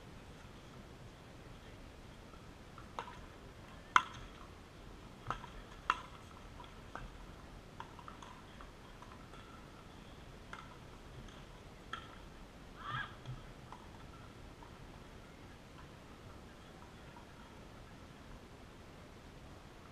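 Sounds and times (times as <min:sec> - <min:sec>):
paddles hitting plastic balls: 0:02.8 - 0:04.5, 0:05.2 - 0:07.2.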